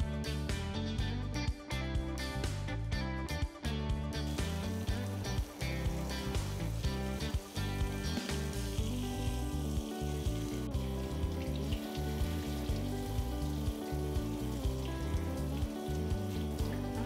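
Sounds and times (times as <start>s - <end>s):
background music with beat: 0.0s - 17.0s
shower head spraying water: 4.3s - 17.0s.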